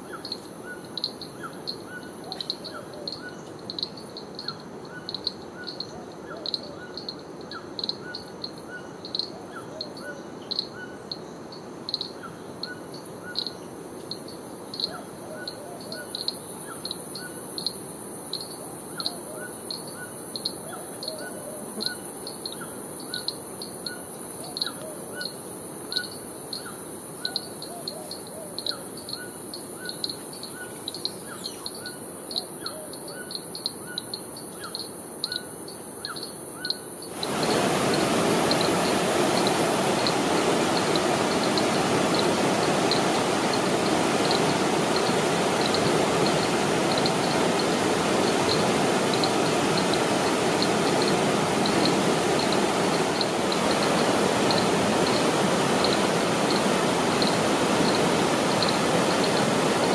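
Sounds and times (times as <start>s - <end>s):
high hiss: 37.0s - 59.9s.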